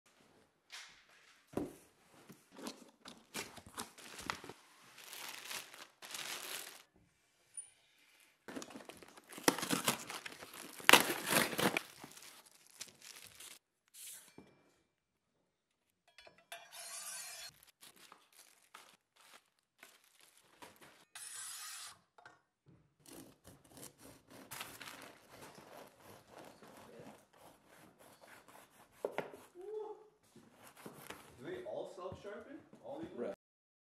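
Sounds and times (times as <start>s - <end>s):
cardboard tearing: 3.2s - 6.9s, 8.5s - 13.6s, 17.5s - 21.8s, 23.3s - 27.2s
plastic wrapping crinkling: 3.2s - 6.9s, 8.5s - 13.6s, 17.5s - 21.0s, 24.6s - 25.8s
knife cutting crusty bread: 23.0s - 29.5s.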